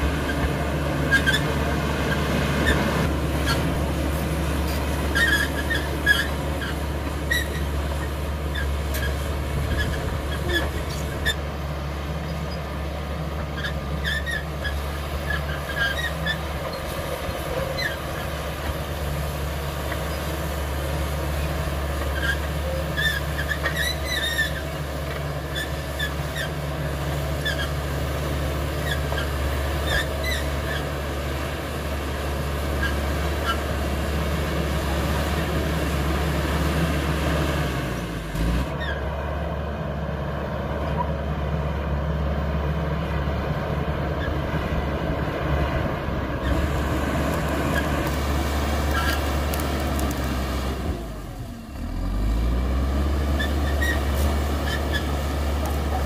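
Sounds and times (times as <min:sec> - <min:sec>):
bulldozer diesel engine running: 0:00.0 - 0:56.0
short high squeaks: 0:05.1 - 0:11.4, 0:13.6 - 0:18.3, 0:22.1 - 0:24.8, 0:28.8 - 0:30.9, 0:53.3 - 0:56.0.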